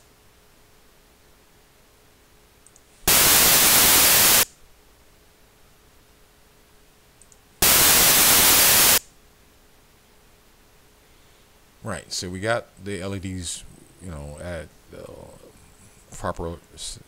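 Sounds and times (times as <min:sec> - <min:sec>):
white noise bursts: 0:03.0 - 0:04.6, 0:07.6 - 0:09.2.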